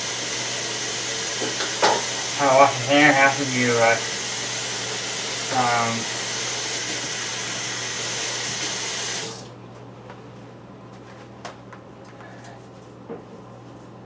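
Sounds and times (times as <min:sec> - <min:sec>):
faucet water running: 0:00.0 - 0:09.5.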